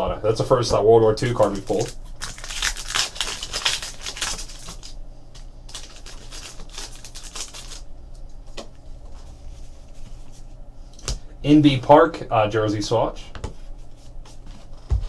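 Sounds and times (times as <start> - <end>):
foil wrapper tearing and crinkling: 1.2 - 7.9.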